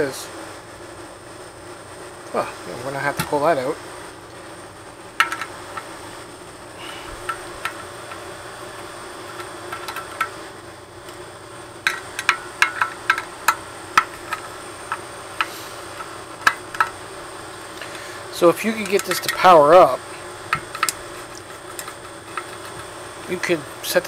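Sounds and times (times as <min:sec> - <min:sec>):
steady background hum: 0:00.0 - 0:24.0
hands clicking plastic parts: 0:11.8 - 0:16.9, 0:18.8 - 0:19.5, 0:20.5 - 0:22.9.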